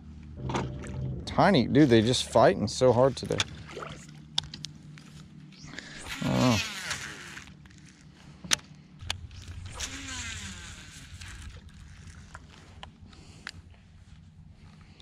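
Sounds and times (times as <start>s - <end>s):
reel spool whirring: 5.0s - 8.1s, 9.1s - 12.8s
fishing reel clicks: 5.7s - 8.0s, 9.0s - 12.6s.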